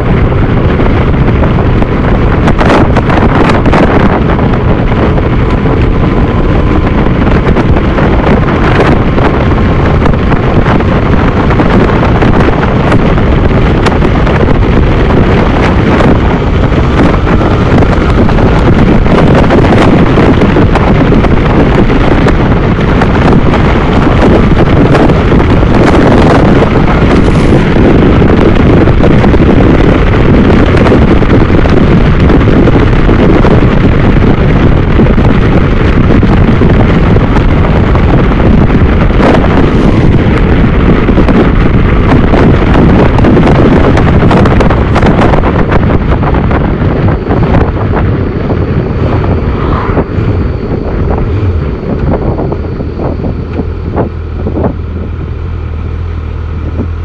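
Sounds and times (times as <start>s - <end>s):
motorcycle engine: 0.0s - 57.0s
road noise: 0.0s - 57.0s
wind buffeting microphone: 0.0s - 57.0s.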